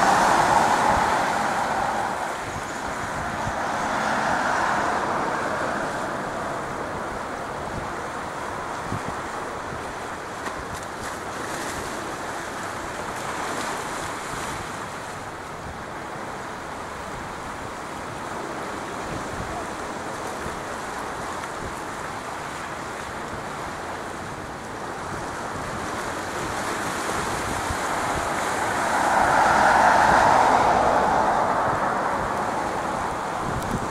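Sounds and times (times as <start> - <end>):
jet engines at taxi power: 0.0 - 11.0, 20.1 - 33.9.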